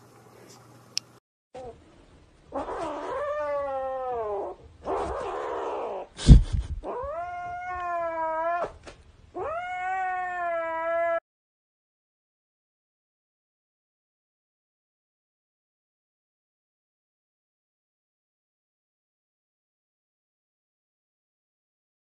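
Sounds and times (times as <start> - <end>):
kitten yowling: 2.5 - 6.1, 6.8 - 8.8, 9.4 - 11.2.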